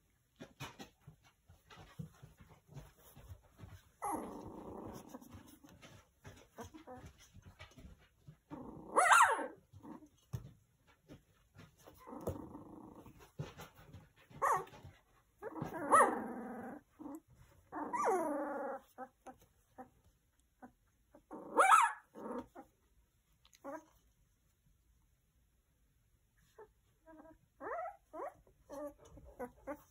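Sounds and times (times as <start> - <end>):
puppy yelping and barking: 4.0 - 7.1, 8.9 - 10.3, 14.3 - 22.8, 26.4 - 29.9.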